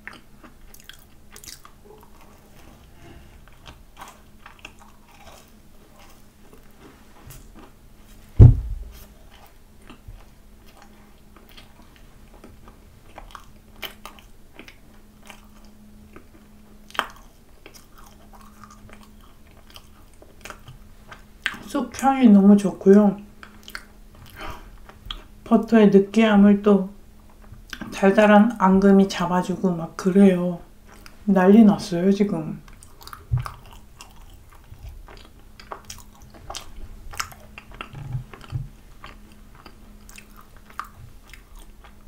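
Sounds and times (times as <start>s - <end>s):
close chewing with mouth clicks: 0.0s - 7.8s, 8.9s - 21.7s, 23.2s - 25.5s, 27.2s - 28.0s, 30.8s - 31.2s, 32.6s - 42.0s
loud low thump: 8.4s - 9.0s.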